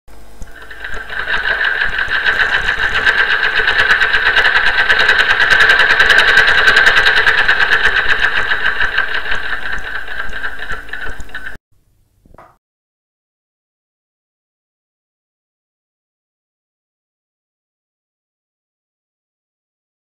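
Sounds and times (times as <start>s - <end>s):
sewing machine running fast: 0.4s - 11.6s.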